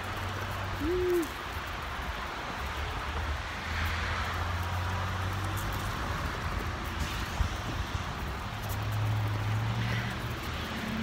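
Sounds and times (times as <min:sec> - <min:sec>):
road traffic passing: 0:00.0 - 0:11.0
person humming: 0:00.8 - 0:01.3.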